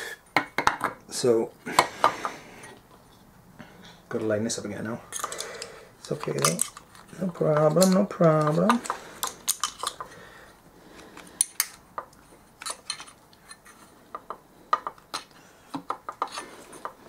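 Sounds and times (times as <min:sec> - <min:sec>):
metallic clicks and clinks: 0:05.1 - 0:06.9.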